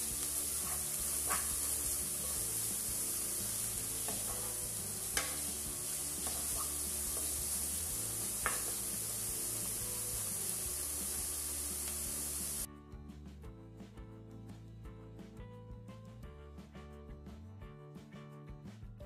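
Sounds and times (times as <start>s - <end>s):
vegetables sizzling in a pan: 0.0s - 12.7s
wooden spoon knocking on pan: 1.1s - 1.9s, 4.0s - 4.6s, 5.2s - 5.5s, 6.2s - 7.6s, 8.2s - 8.9s.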